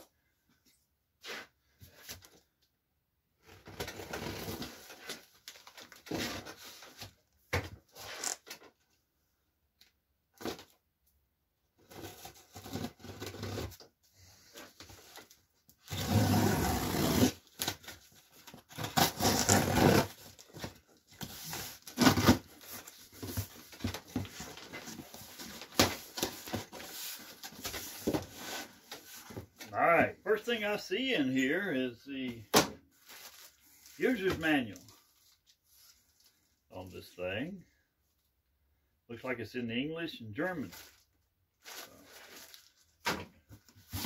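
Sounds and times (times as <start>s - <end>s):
packing tape tearing: 15.9s - 18.0s, 18.7s - 24.0s.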